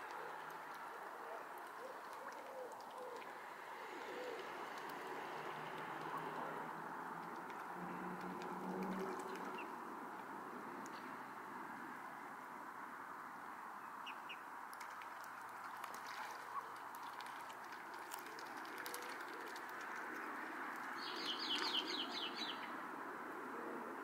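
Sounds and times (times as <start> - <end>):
steady outdoor hiss: 0.0 - 24.0
bird chirping: 21.0 - 22.7.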